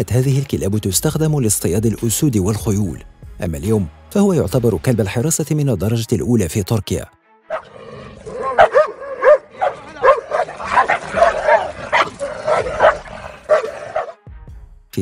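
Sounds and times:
dogs barking: 0:07.5 - 0:14.2.

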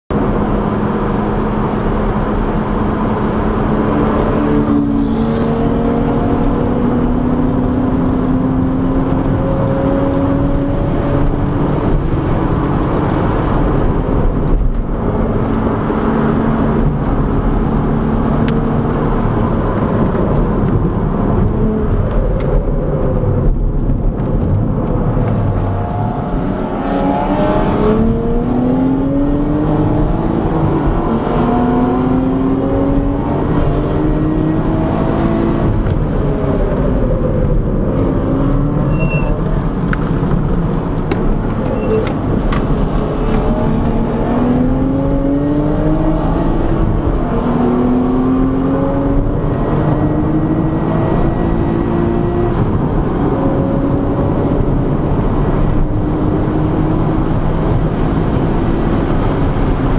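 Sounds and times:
turbocharged car engine: 0:00.1 - 0:59.9
wind and road noise: 0:00.1 - 0:59.9.

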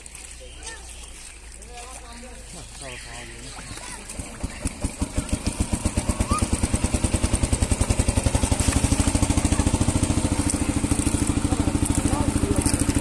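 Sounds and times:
small engine chugging: 0:00.0 - 0:13.0.

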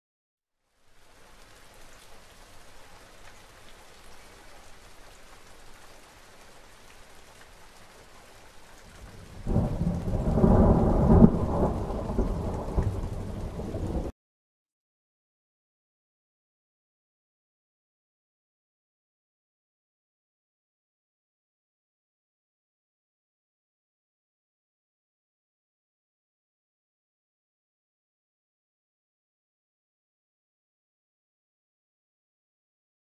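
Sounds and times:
rain hissing: 0:00.6 - 0:14.1
thunder rumbling: 0:08.9 - 0:14.1.

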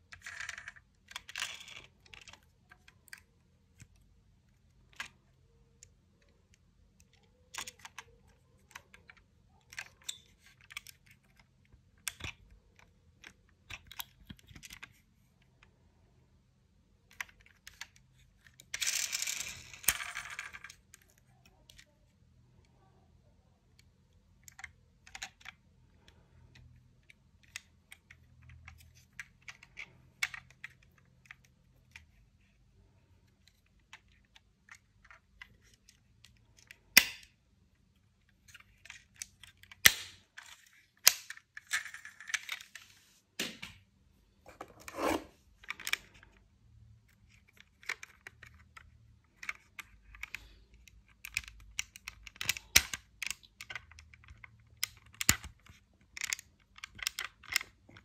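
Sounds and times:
toy cars clattering on hard surface: 0:18.6 - 0:20.8.

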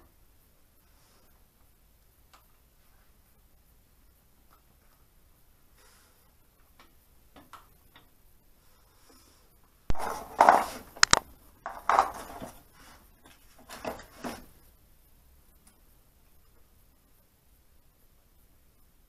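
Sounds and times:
metal clattering and scraping: 0:09.9 - 0:12.6.

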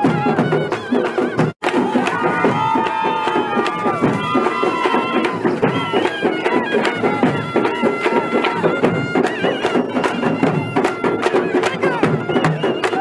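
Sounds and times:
large drums beating: 0:00.0 - 0:13.0
shrill reed wind instrument: 0:03.3 - 0:13.0.

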